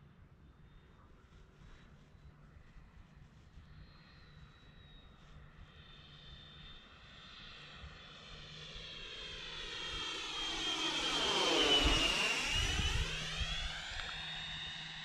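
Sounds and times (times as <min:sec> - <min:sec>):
electric ducted fan jet whine: 0:03.5 - 0:15.0.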